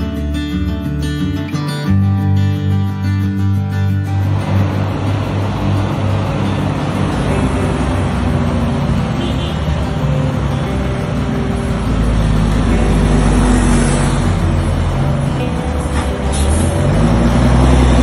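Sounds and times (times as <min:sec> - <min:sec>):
road noise: 0:03.6 - 0:18.0
truck diesel engine running: 0:04.0 - 0:18.0.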